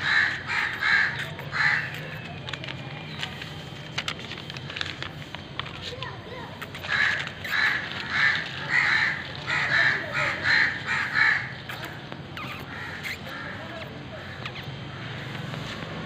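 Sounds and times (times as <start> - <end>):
harsh animal calls: 0.0 - 2.4, 6.5 - 16.0.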